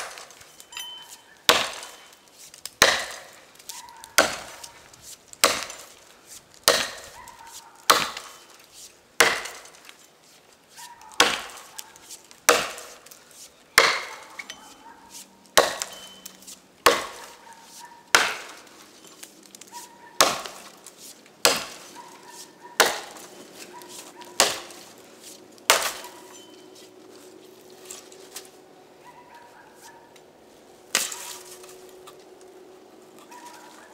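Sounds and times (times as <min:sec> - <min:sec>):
axe chopping log: 0:00.0 - 0:00.4, 0:01.5 - 0:04.8, 0:05.4 - 0:08.6, 0:09.2 - 0:10.0, 0:10.8 - 0:13.2, 0:13.8 - 0:18.7, 0:19.5 - 0:26.4, 0:30.9 - 0:31.4.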